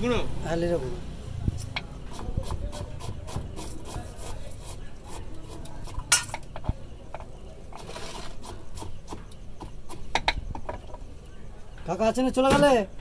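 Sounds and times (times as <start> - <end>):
soft rubbing on dough: 1.9 - 6.1.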